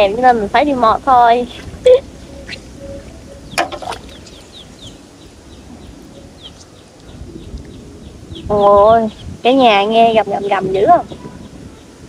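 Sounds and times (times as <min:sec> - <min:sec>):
wind: 0:00.0 - 0:12.0
bird chirping falling notes: 0:01.5 - 0:09.3.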